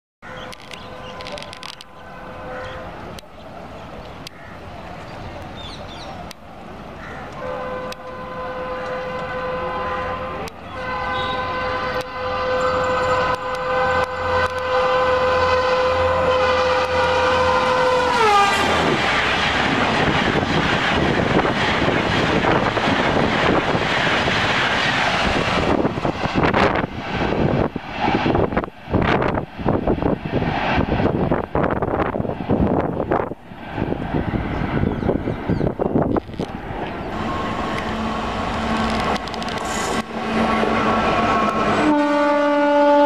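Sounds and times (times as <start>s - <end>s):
train coaches rushing by: 0.3s - 43.0s
train horn blast: 0.4s - 3.0s, 7.1s - 19.2s, 37.2s - 43.0s.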